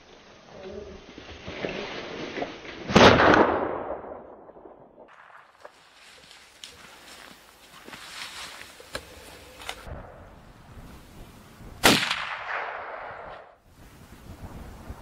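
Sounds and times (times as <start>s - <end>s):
gunshot with echo: 2.9s - 4.2s, 11.8s - 13.5s.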